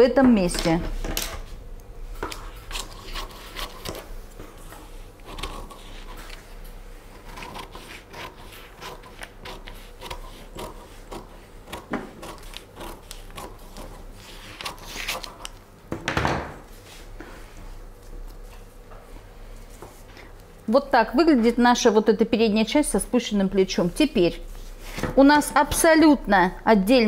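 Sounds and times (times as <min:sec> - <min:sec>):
paper rustling and scratching: 0:02.2 - 0:15.6.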